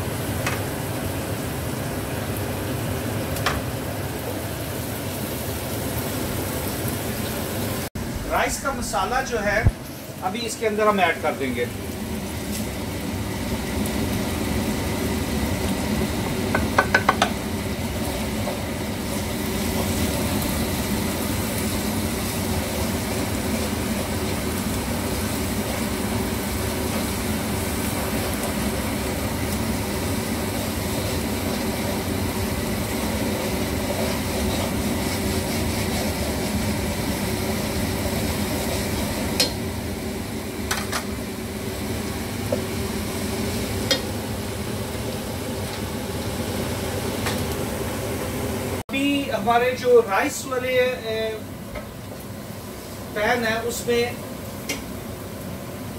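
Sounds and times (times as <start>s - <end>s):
onions sizzling in hot oil: 0.0s - 55.9s
steady hum: 8.0s - 51.9s.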